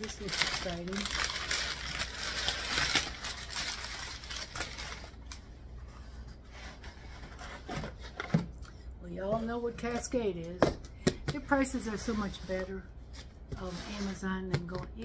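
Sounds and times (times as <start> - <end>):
packing paper rustling: 0.0 - 8.2.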